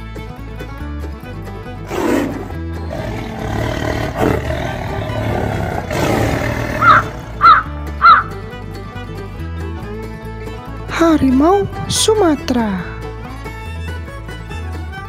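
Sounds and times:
background music: 0.0s - 15.0s
tiger roar: 1.8s - 8.3s.

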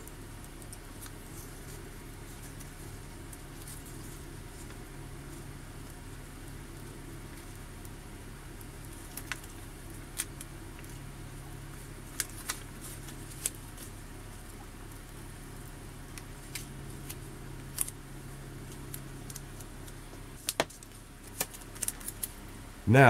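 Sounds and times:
faint crackles and ticks: 0.0s - 22.6s
low steady hum: 0.0s - 23.0s
vinyl peeling from backing paper: 18.6s - 22.4s.

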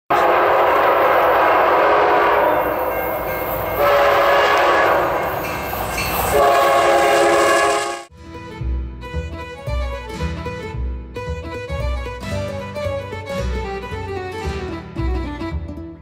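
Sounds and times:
locomotive air horn chords: 0.1s - 5.6s, 6.2s - 8.1s
low rumble of passing train: 0.1s - 8.1s.

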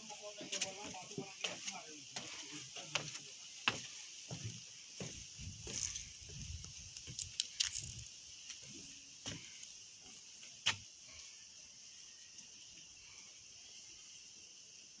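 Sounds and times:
footsteps on dry leaves and stone: 0.0s - 10.9s
high insect chorus: 0.0s - 15.0s.

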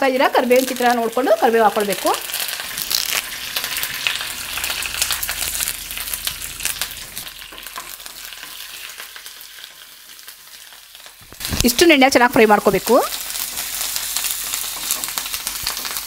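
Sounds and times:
spices sizzling in hot oil: 0.0s - 16.0s.

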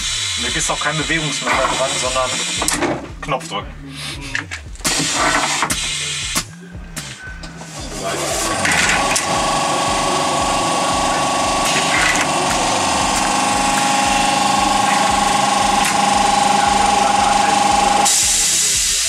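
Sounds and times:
hiss: 0.0s - 2.6s, 4.9s - 19.0s
motorised mechanism buzzing rattle: 8.4s - 18.2s.

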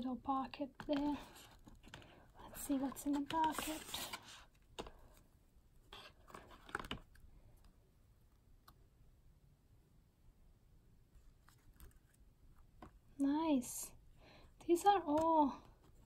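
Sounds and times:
paper and card rustling: 0.5s - 5.3s, 5.9s - 7.2s, 11.2s - 13.0s, 14.7s - 16.0s.

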